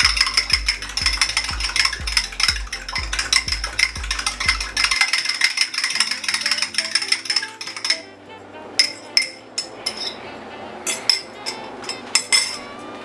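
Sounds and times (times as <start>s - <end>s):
utensil clinking against metal pan: 0.0s - 8.0s, 10.9s - 12.6s
background music: 0.0s - 13.0s.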